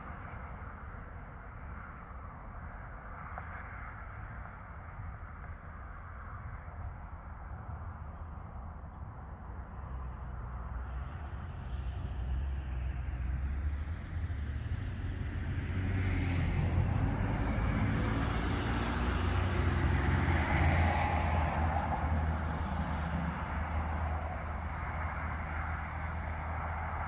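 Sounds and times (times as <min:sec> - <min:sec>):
van driving past: 0:11.8 - 0:27.0.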